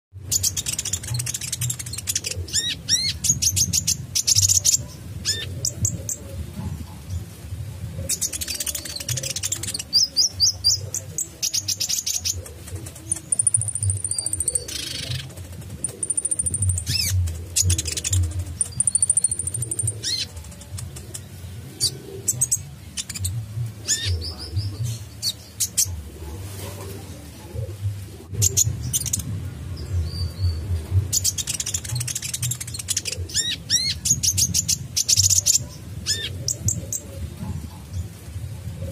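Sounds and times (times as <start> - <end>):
bird chirps and trills: 0.2 - 6.3, 8.0 - 26.1, 28.1 - 37.1.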